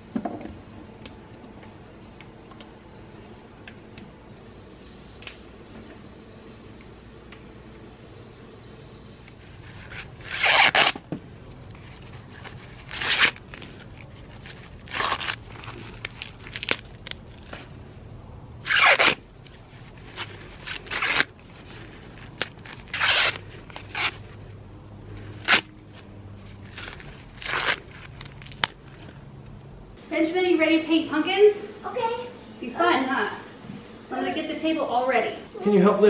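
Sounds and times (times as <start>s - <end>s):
corn husks tearing: 9.4s - 11.0s, 11.7s - 17.8s, 18.6s - 24.4s, 25.2s - 29.2s.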